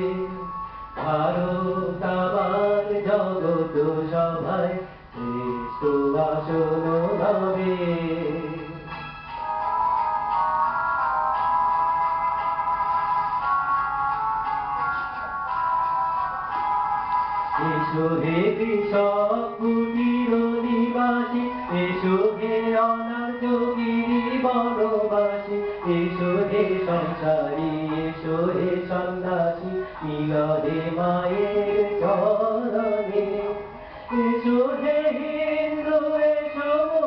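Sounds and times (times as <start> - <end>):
man singing into microphone: 0.0 - 9.0, 17.6 - 37.0.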